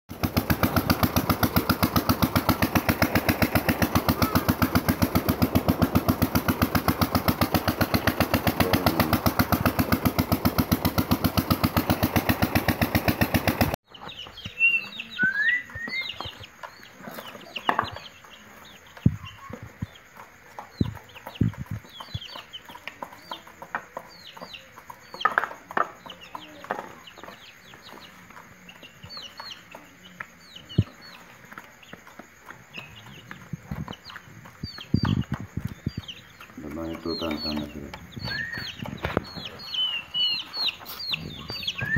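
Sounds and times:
engine running: 0.1 - 13.8
chicks peeping: 0.1 - 41.9.

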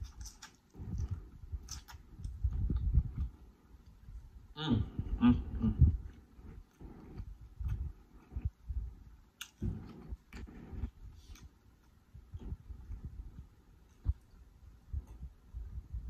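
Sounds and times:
chewing food: 0.0 - 4.3, 5.5 - 15.4.

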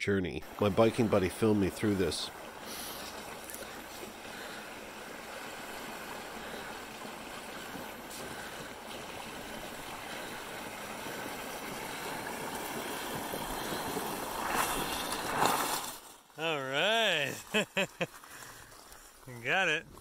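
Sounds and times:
bike tires splashing through water: 0.4 - 19.2.

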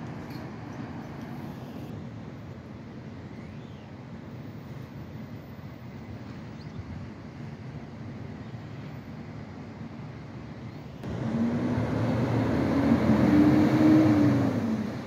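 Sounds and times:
garbage truck diesel engine revving: 11.0 - 15.0.

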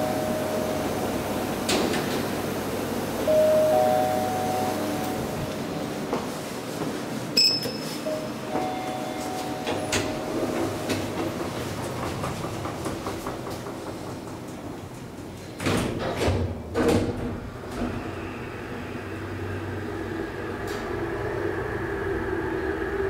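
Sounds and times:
elevator doors thudding shut: 0.0 - 5.6, 7.7 - 18.1
hydraulic pump hum and whine: 0.0 - 6.2.

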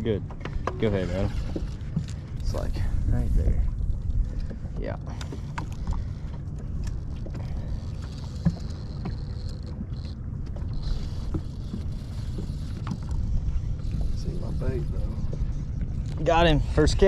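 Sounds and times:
boat and tackle clicks and knocks: 0.0 - 2.8, 3.9 - 16.4
wind and water rumble: 0.0 - 17.0.

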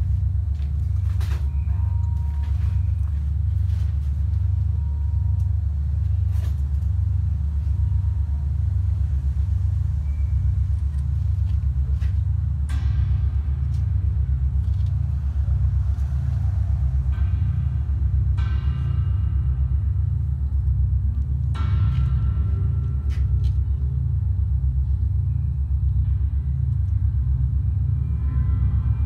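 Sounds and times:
metallic ringing tones: 0.0 - 15.8
deep pulsing low drone: 0.0 - 29.0.

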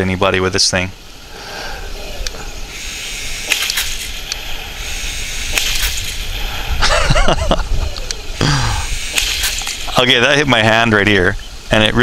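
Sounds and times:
sharp clicks: 2.2 - 6.5, 7.9 - 8.2, 8.8 - 10.0
toy tank motor rumble: 2.8 - 6.8.

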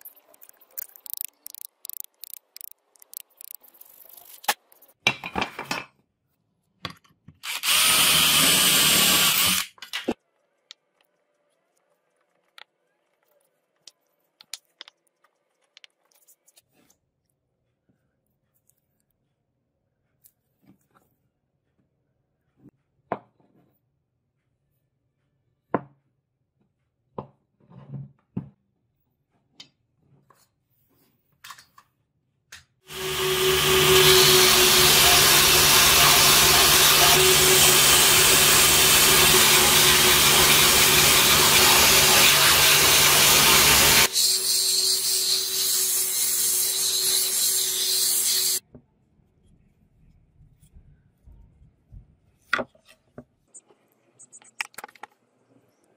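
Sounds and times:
belt sander motor hum: 32.9 - 44.1.

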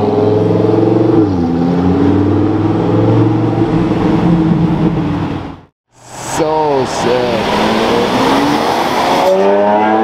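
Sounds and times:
sports car engine accelerating: 6.5 - 10.0.

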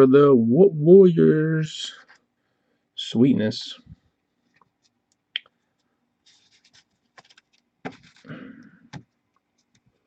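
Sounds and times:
trading cards sliding and clicking: 6.2 - 8.3.

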